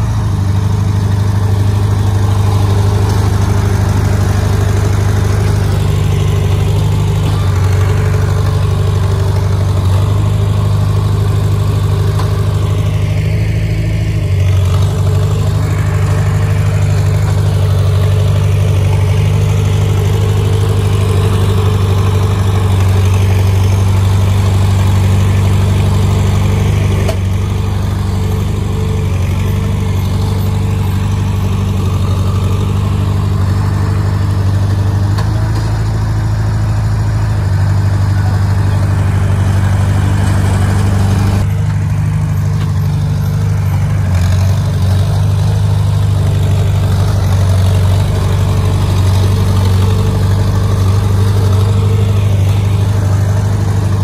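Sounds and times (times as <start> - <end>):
bulldozer diesel engine running: 0.0 - 54.0.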